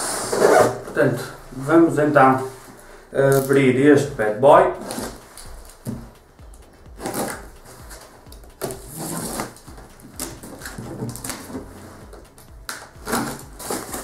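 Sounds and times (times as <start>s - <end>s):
cardboard rustling and scraping: 0.1s - 1.2s, 4.7s - 6.2s, 7.0s - 14.0s.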